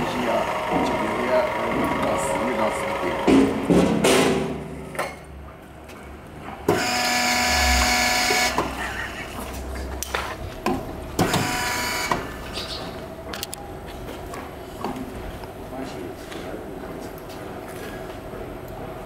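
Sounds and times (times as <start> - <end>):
electric pump motor whining: 0.0 - 3.7, 6.7 - 13.2.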